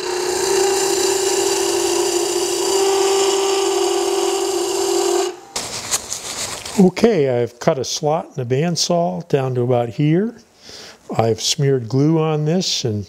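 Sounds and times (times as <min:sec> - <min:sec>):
chisel cutting hiss: 0:00.0 - 0:05.6
wood lathe hum: 0:00.0 - 0:05.6.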